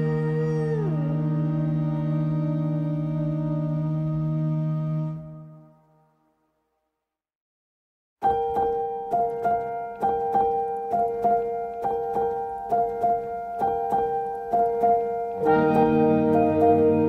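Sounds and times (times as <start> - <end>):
keyboard playing notes: 8.2 - 17.0
sustained chords and bass: 15.4 - 17.0.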